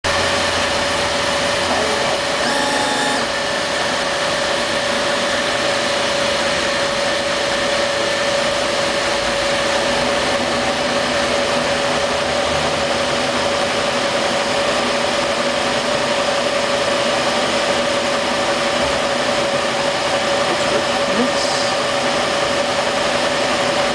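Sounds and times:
constant machine tone: 0.1s - 23.9s
laser engraver running: 0.1s - 23.9s.

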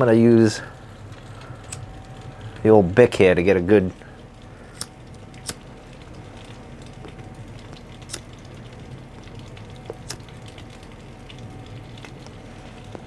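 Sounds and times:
electric heater hum: 0.0s - 13.0s
pipe puffing with crackle: 0.5s - 13.0s
lighter flicking clicks: 1.6s - 1.9s, 4.7s - 5.6s, 8.0s - 8.3s, 9.9s - 10.3s.

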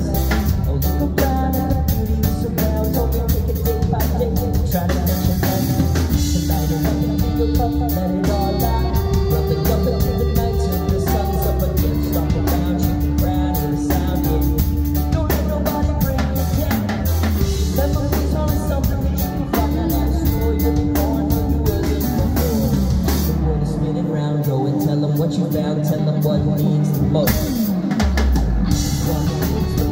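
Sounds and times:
drum kit beat: 0.0s - 29.9s
rock band playing: 0.0s - 29.9s.

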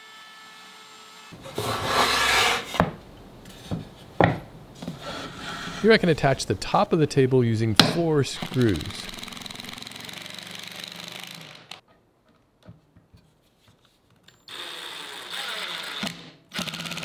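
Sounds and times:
impact driver rattling: 8.4s - 11.7s.

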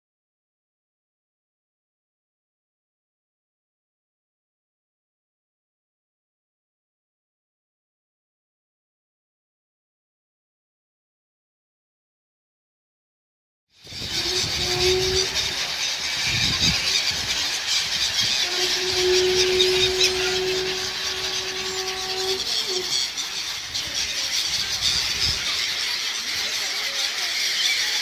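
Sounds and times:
gulls squealing: 13.9s - 28.0s
steady low tone: 18.2s - 24.0s.

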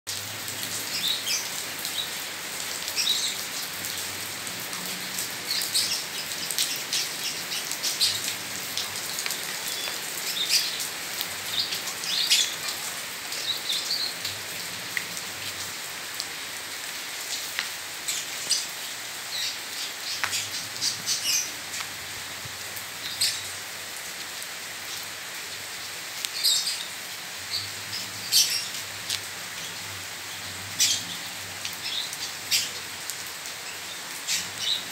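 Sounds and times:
rain on paving and leaves: 0.1s - 34.9s.

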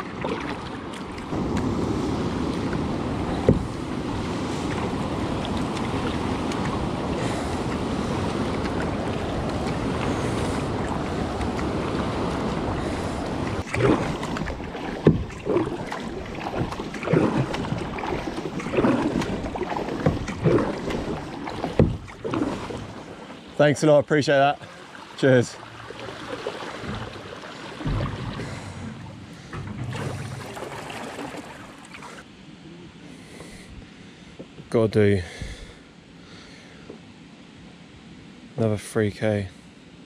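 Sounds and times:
water splashes: 0.0s - 32.4s
knocks on kayak: 3.4s - 3.8s, 13.8s - 15.7s, 21.7s - 22.5s, 26.8s - 31.4s.

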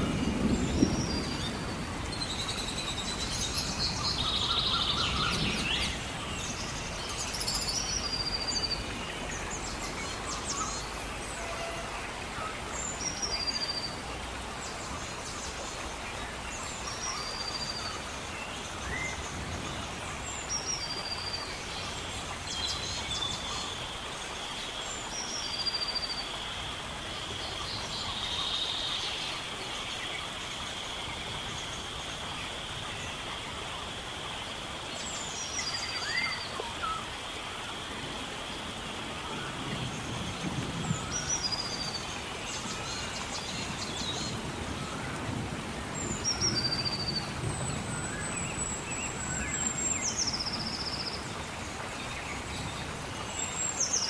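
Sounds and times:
birds chirping: 0.0s - 26.4s
background hiss: 0.0s - 54.0s.

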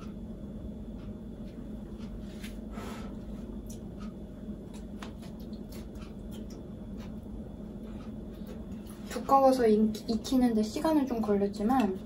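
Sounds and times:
steady low hum: 0.0s - 12.0s
soft chewing: 1.4s - 9.3s
noisy breath: 2.4s - 3.5s.

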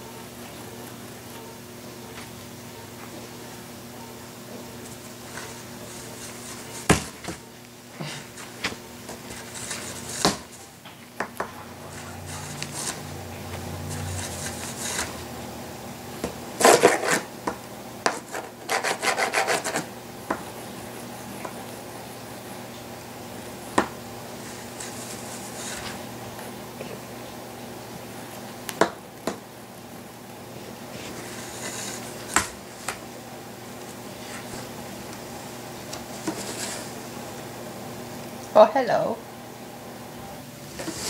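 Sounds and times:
scratching on cardboard box: 9.2s - 10.6s, 11.9s - 13.1s, 13.8s - 15.2s, 16.6s - 17.3s, 18.1s - 19.9s.

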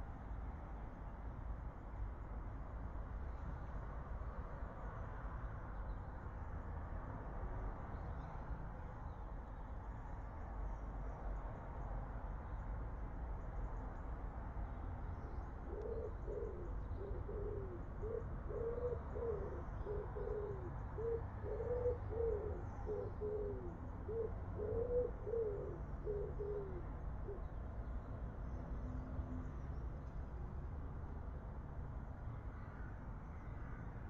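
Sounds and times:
pigeon cooing: 15.7s - 27.4s.

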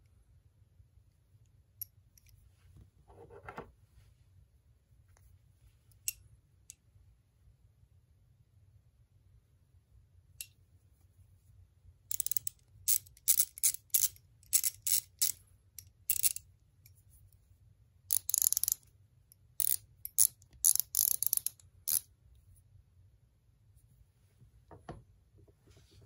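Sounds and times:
ratchet pawl clicking: 12.1s - 15.4s, 18.1s - 18.8s, 19.6s - 22.0s.

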